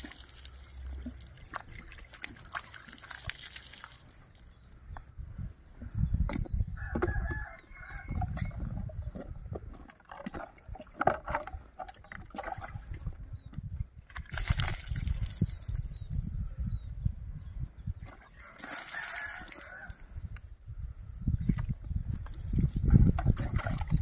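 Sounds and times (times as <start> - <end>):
water splash: 0.0 - 4.4
water poured from dipper: 0.0 - 4.6, 14.2 - 16.1, 18.4 - 20.0, 21.4 - 24.0
rooster crowing: 6.8 - 8.2, 18.4 - 20.0.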